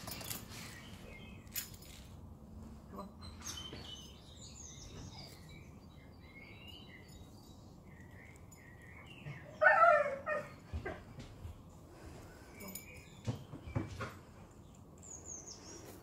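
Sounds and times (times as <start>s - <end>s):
small birds chirping: 0.0s - 2.1s, 2.7s - 16.0s.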